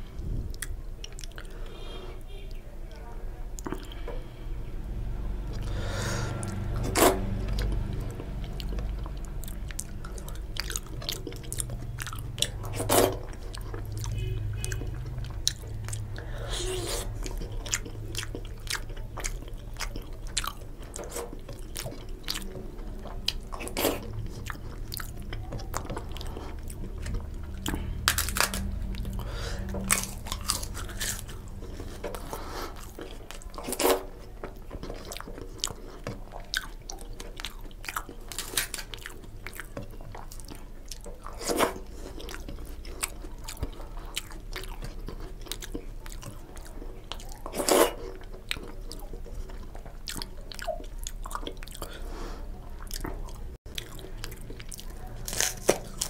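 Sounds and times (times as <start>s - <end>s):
low steady hum: 0.0s - 56.0s
wet chewing and lip-smacking: 0.3s - 1.8s, 6.3s - 56.0s
crisp crunches: 28.0s - 28.7s, 55.2s - 56.0s.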